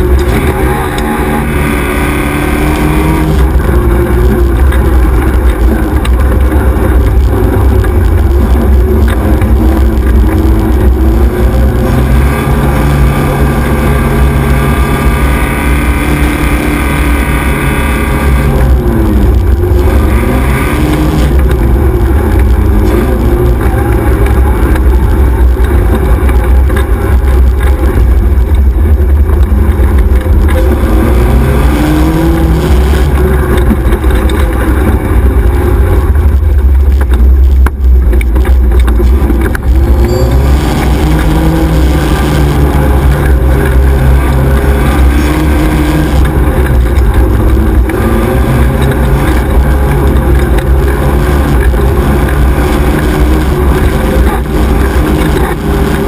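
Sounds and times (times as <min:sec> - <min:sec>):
buggy engine revving: 0:00.0 - 0:56.0.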